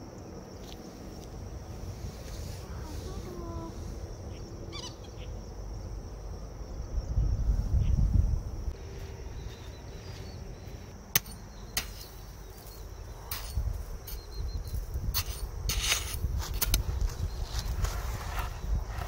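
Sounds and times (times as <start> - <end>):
hatchet chopping into sand: 11.1 - 13.6.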